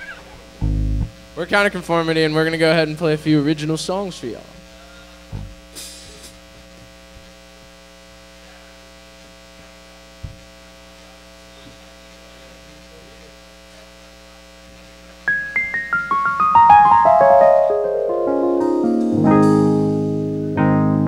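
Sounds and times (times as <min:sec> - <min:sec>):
electrical mains hum: 0:00.0 - 0:21.0
electric piano playing: 0:00.6 - 0:01.1, 0:15.3 - 0:21.0.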